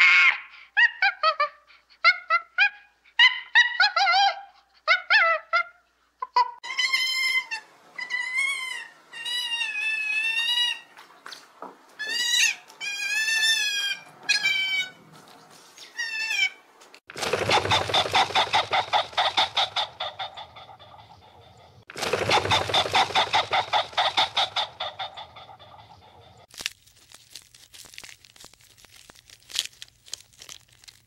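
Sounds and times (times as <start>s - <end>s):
otters squealing: 17.2s - 26.5s.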